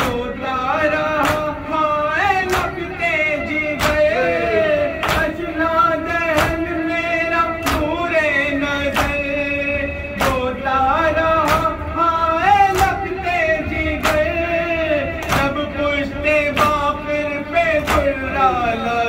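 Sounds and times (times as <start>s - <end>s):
men chanting a lament: 0.0s - 19.0s
hands slapping chests: 12.7s - 13.0s, 15.2s - 15.6s.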